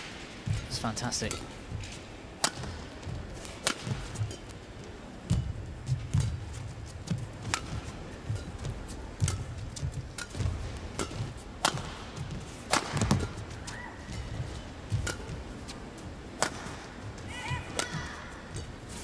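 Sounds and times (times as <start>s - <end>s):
rackets striking shuttlecock: 0.1s - 19.0s
players' footfalls: 0.4s - 19.0s
court shoes squeaking: 0.5s - 19.0s.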